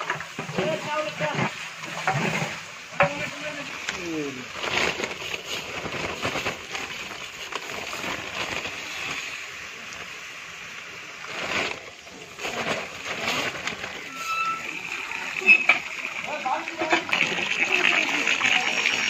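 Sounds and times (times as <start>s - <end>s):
rice grains pouring: 0.0s - 10.2s, 10.8s - 19.0s.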